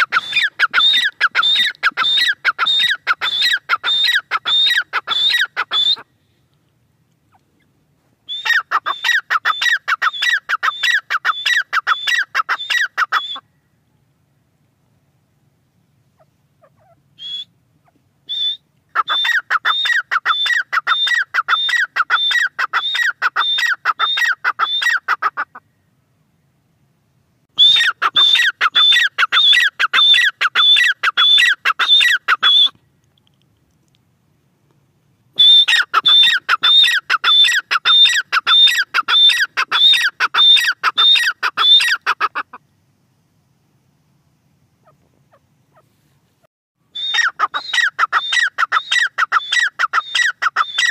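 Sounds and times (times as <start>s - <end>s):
bird calling high-pitched notes: 0.0s - 6.1s, 8.3s - 13.6s, 16.7s - 17.6s, 18.3s - 25.0s, 27.6s - 32.8s, 35.4s - 42.2s, 46.9s - 50.9s.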